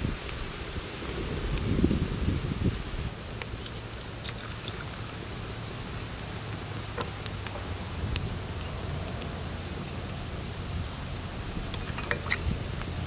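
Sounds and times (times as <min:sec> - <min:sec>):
water heating with steady hiss: 0:00.0 - 0:13.0
faint pops and crackles: 0:02.9 - 0:05.7, 0:06.3 - 0:10.2, 0:11.6 - 0:13.0.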